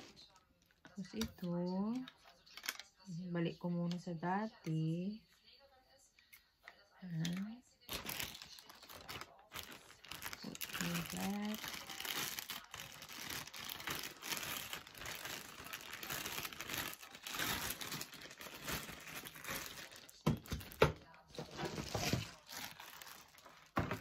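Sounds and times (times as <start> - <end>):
plastic packaging crinkling: 7.3 - 24.0.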